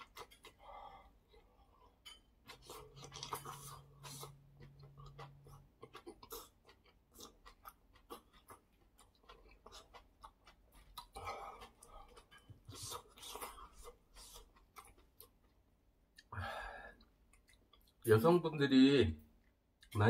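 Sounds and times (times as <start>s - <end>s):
mouth smacks and chewing: 0.0s - 0.6s, 2.4s - 16.3s, 17.0s - 18.0s
low steady hum: 0.0s - 20.0s.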